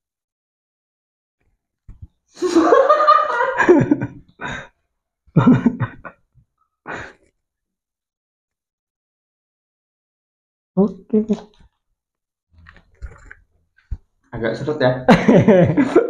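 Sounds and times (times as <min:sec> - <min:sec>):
young men laughing: 0:02.4 - 0:04.6, 0:05.4 - 0:06.2, 0:15.1 - 0:16.0.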